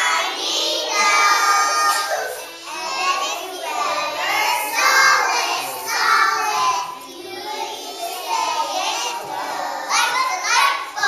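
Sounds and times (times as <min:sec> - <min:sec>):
young children singing: 0:00.0 - 0:11.0.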